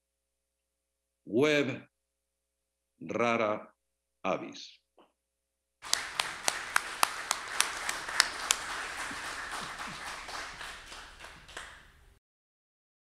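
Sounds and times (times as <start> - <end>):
audience applauding: 5.8 - 12.2
loud close hand claps: 5.8 - 12.2.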